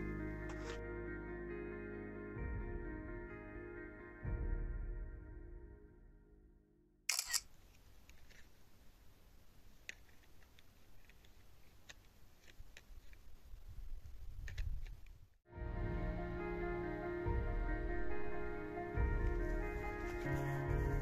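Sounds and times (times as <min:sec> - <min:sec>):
background music: 0:00.0 - 0:06.8, 0:15.5 - 0:21.0
sharp crackle: 0:07.1 - 0:08.6.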